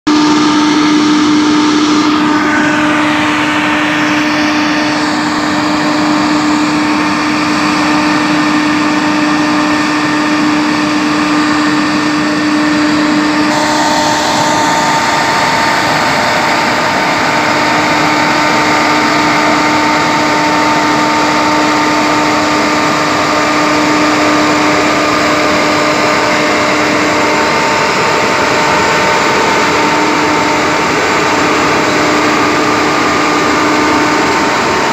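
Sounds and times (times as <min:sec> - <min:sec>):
sprayer fan rushing and whining: 0:00.1 - 0:34.9
truck engine: 0:00.1 - 0:34.9.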